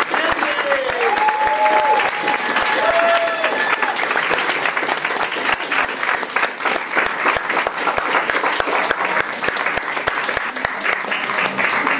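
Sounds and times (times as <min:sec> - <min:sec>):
applause: 0:00.0 - 0:11.9.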